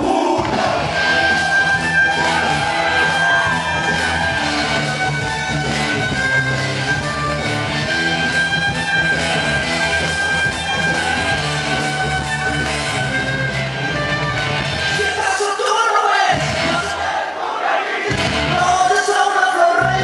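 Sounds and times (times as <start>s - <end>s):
loud dance music: 0.0s - 5.5s.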